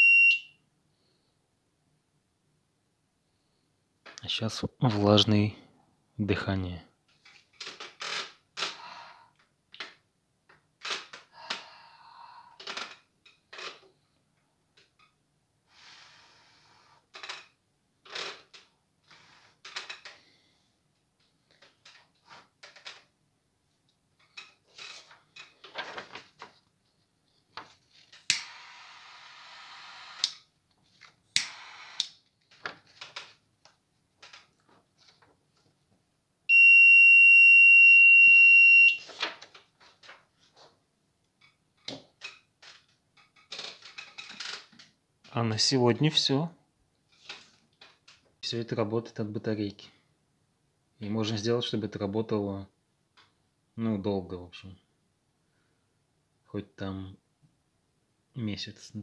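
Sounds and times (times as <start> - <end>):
high-pitched alarm beep: 0.0 - 0.6, 36.5 - 39.0
puffs of breath: 11.3 - 12.6.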